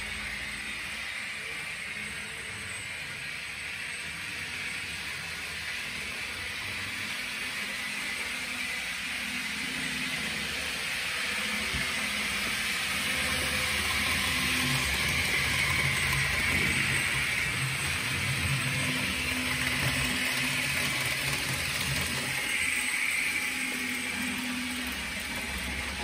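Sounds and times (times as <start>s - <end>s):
model train motor whirring: 0.0s - 26.0s.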